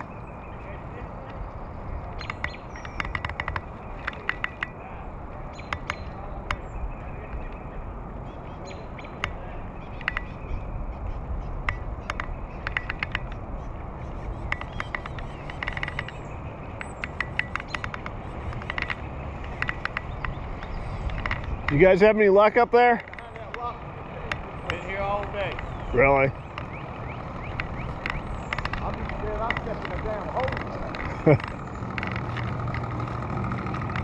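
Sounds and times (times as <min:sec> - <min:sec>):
wind: 0:00.0 - 0:34.0
rapid sharp clicks: 0:02.2 - 0:04.8, 0:14.4 - 0:34.0.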